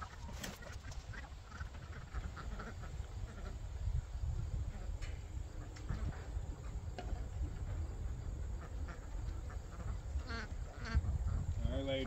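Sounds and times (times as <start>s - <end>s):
chickens calling quietly: 0.0s - 12.0s
insects chirping: 0.2s - 12.0s.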